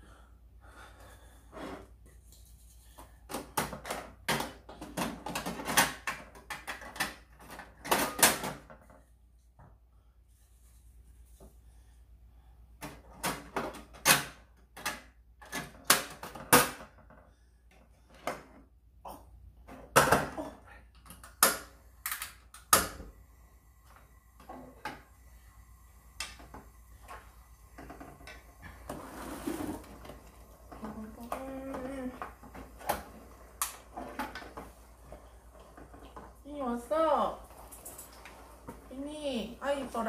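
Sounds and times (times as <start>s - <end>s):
kitchen clacks and knocks: 3.3s - 9.0s.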